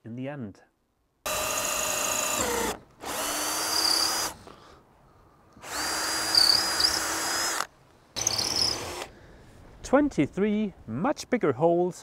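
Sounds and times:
power drill whining: 1.3s - 4.4s, 5.6s - 9.1s.

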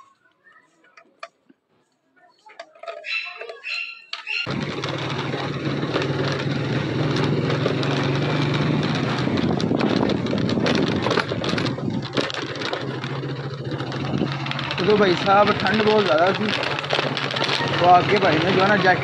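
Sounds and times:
crackling road noise: 0.0s - 19.0s
motorcycle engine running: 4.4s - 19.0s
wind rushing on microphone: 8.9s - 12.0s.

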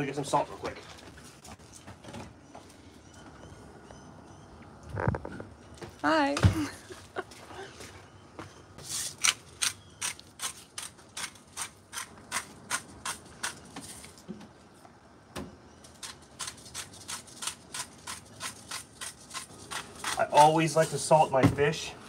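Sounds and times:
salt grinder crunching: 16.0s - 20.6s.

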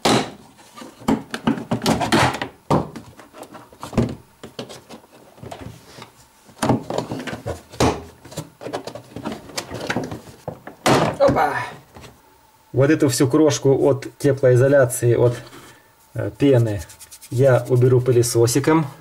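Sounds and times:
rustling: 16.5s - 18.4s.

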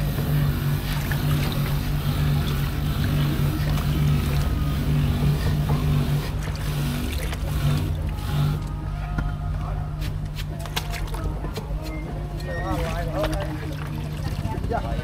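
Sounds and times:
water swishing: 0.0s - 9.2s, 12.6s - 15.0s
low motor hum: 0.0s - 15.0s.

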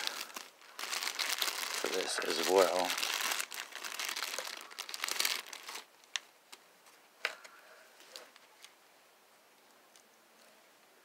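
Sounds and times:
plastic packaging crinkling: 0.0s - 6.3s.

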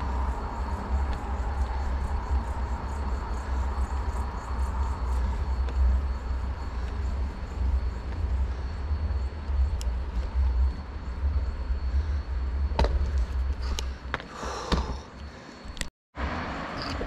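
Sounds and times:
wind rumbling on microphone: 0.0s - 14.1s.

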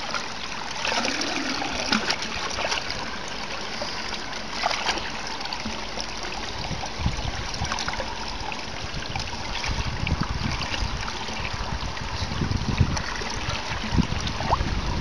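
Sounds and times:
water running through drain grate: 0.0s - 15.0s
low microphone rumbles: 8.8s - 15.0s.

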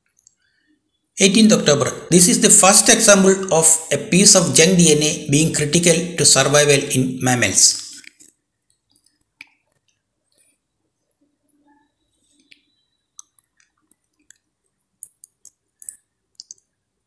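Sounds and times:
faint small clicks: 12.4s - 16.7s.

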